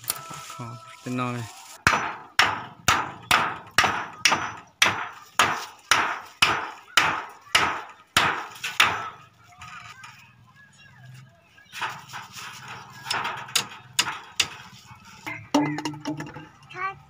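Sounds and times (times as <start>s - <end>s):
hammer striking wooden post: 1.8s - 9.2s, 13.0s - 14.7s, 15.3s - 16.5s.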